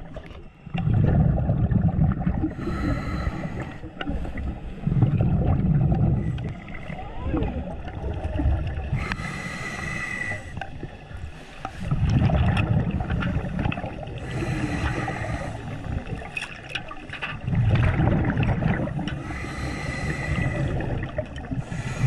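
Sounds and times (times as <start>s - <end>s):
gurgling exhaled bubbles: 0.0s - 11.0s, 11.8s - 22.0s
hissing regulator inhale: 2.5s - 4.9s, 9.0s - 10.6s, 14.2s - 15.9s, 19.2s - 22.0s.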